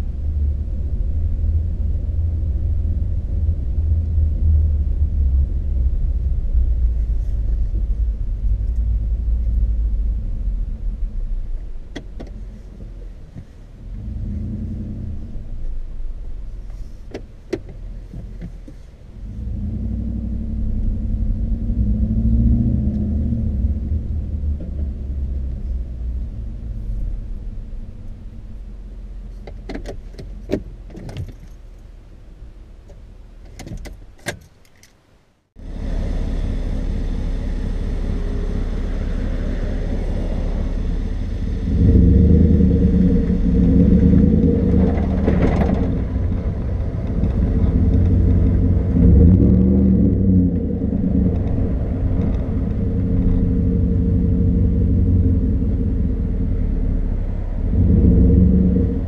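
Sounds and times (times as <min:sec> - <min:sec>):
cab road and engine noise: 0:00.0 - 0:59.0
truck engine idling and rumbling: 0:00.0 - 0:59.0
clicks and rattles: 0:33.5 - 0:35.0.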